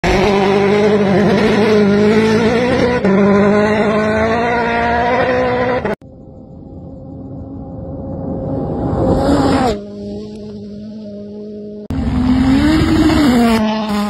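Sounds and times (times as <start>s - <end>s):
rally car engine at high revs: 0.0s - 6.0s, 9.0s - 14.0s.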